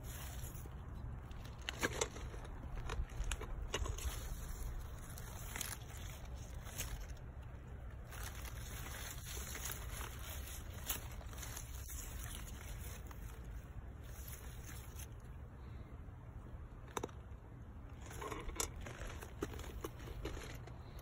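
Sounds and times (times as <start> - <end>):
leaves rustling against phone: 0.0 - 15.8.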